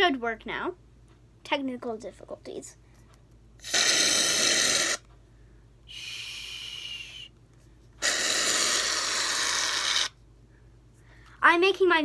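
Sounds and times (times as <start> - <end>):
aerosol can hissing: 3.6 - 5.0, 8.0 - 10.1
faint steady whistle: 5.9 - 7.3.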